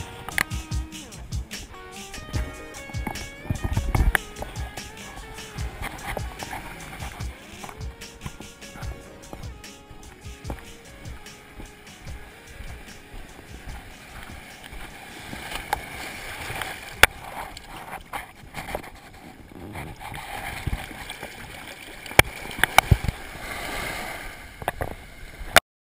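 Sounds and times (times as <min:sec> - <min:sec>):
sharp water splashes: 0:00.0 - 0:19.2, 0:19.9 - 0:25.5
shallow surf sloshing: 0:00.0 - 0:25.6.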